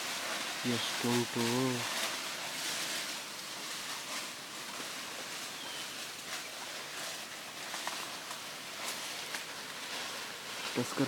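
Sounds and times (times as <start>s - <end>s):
steady hiss: 0.0s - 11.0s
faint bird chirp: 5.4s - 6.6s.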